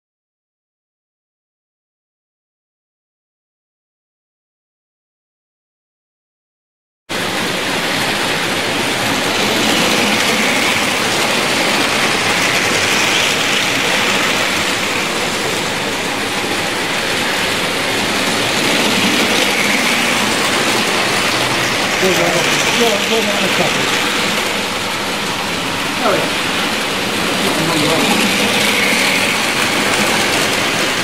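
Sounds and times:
model train running on track: 7.1s - 31.0s.

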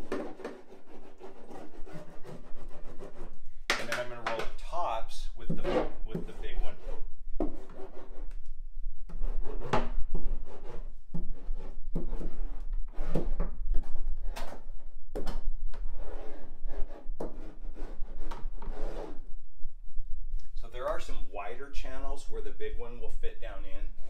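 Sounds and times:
hand roller rasping on mat: 0.0s - 3.3s.

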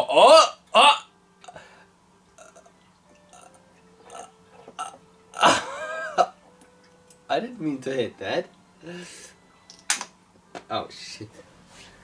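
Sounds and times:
glass ringing tones: 2.4s - 5.6s.

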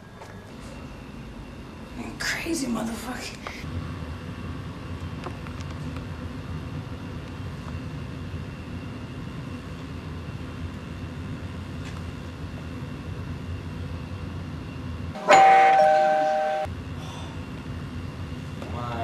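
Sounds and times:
low room hum: 0.0s - 19.0s
two-tone doorbell chime: 15.2s - 16.7s.

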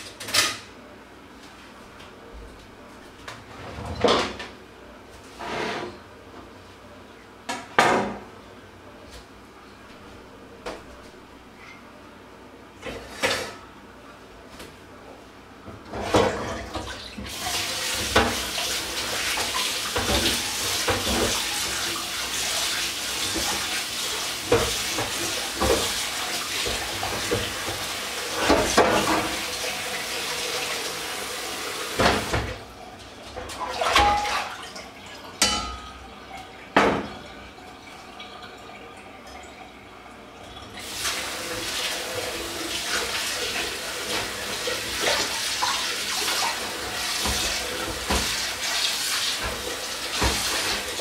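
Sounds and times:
tap running into sink: 31.9s - 32.6s, 46.4s - 48.4s, 49.3s - 51.0s
dishes clinking and knocking: 33.8s - 34.4s, 35.4s - 36.1s.

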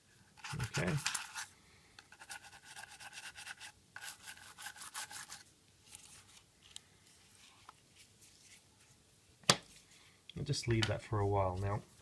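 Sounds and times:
toothbrush scrubbing: 0.4s - 1.5s, 2.1s - 5.4s.

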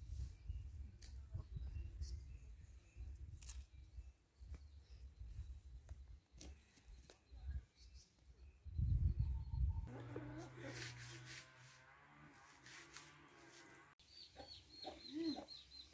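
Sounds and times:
wind rumbling on microphone: 0.0s - 4.1s, 8.4s - 9.9s
faint bird chirps: 14.0s - 15.9s.

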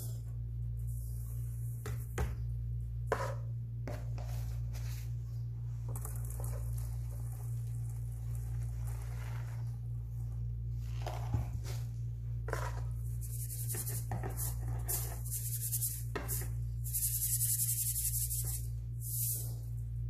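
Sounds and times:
steady low hum: 0.0s - 20.0s
powder pouring into sieve: 5.9s - 9.9s.

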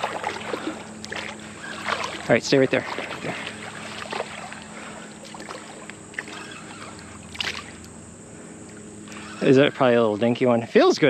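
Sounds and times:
water splashing around legs: 0.0s - 7.9s.

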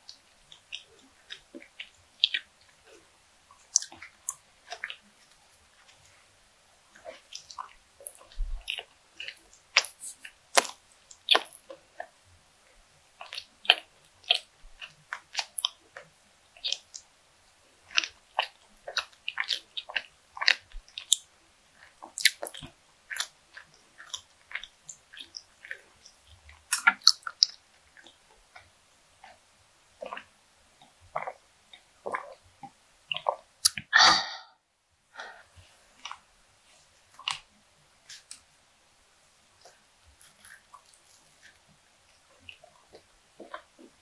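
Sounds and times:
wet chewing mouth clicks: 0.0s - 6.2s, 6.9s - 12.2s, 13.1s - 17.2s, 17.8s - 34.4s, 36.0s - 36.3s, 37.1s - 38.5s, 39.6s - 44.0s
person drinking from a glass: 33.6s - 34.6s.

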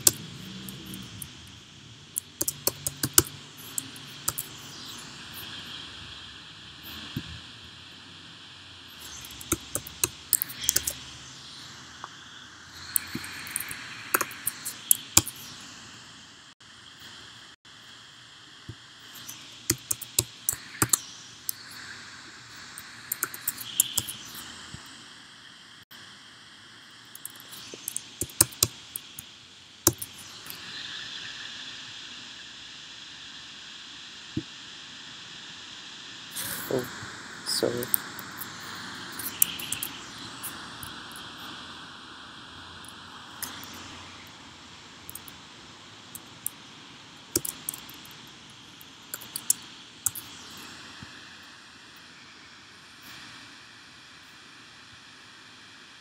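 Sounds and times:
faint steady hiss: 0.0s - 56.0s
keyboard keys clicking: 2.2s - 5.0s, 9.0s - 11.0s, 19.2s - 21.7s, 27.2s - 29.2s, 29.9s - 30.6s, 47.4s - 48.0s.

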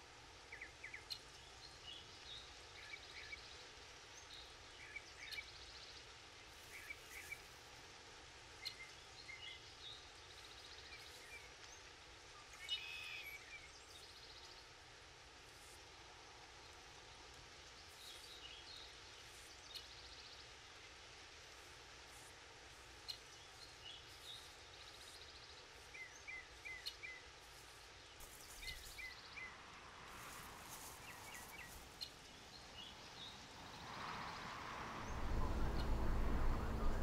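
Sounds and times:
faint steady background: 0.0s - 37.0s
small birds chirping: 0.4s - 7.8s, 8.5s - 14.8s, 15.4s - 37.0s
loud low rumble: 35.0s - 37.0s.

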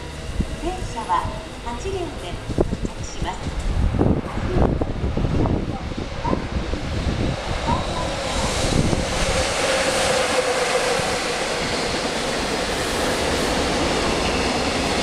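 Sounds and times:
train wheels rushing on rails: 0.0s - 15.0s.

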